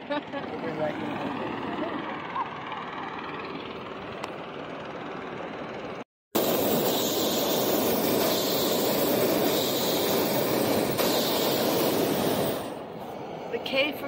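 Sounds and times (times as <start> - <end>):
propane burner roaring: 0.0 - 14.0.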